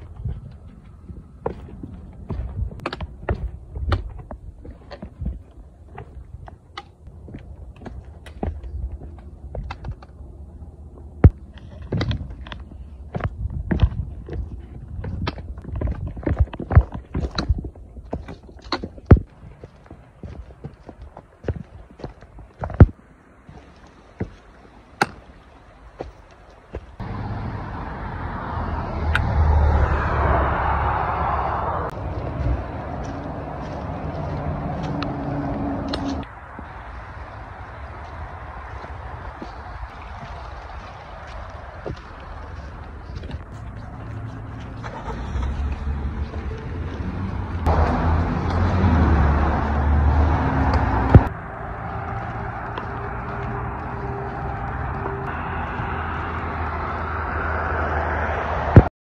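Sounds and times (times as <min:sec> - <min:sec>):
tyre noise: 0:00.0 - 0:27.5, 0:28.7 - 0:58.9
cars passing: 0:27.0 - 0:58.9.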